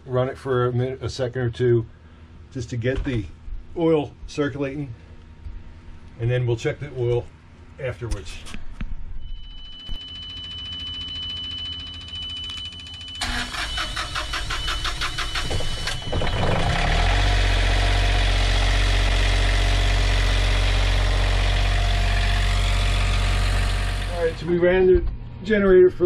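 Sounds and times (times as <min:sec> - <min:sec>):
steady high tone: 0:09.2 - 0:18.6, 0:21.6 - 0:24.9
generator engine running: 0:10.0 - 0:25.1
starter motor cranking: 0:13.2 - 0:24.4.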